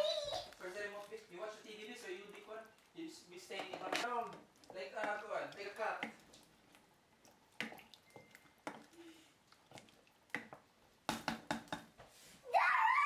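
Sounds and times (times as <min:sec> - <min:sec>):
liquid sloshing: 0:00.4 - 0:10.8
wooden spoon knocking on pot: 0:03.5 - 0:06.3, 0:10.3 - 0:12.0.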